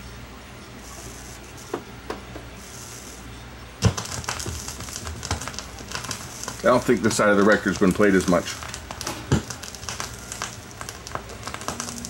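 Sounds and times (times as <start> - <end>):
vinyl record crackle: 3.8 - 12.0.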